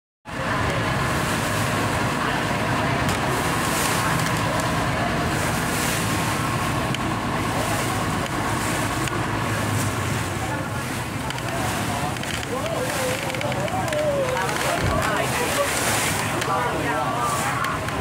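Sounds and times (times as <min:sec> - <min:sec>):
wind and spray hiss: 0:00.3 - 0:13.4
boat engine running: 0:00.3 - 0:18.0
water rushing past hull: 0:00.3 - 0:18.0.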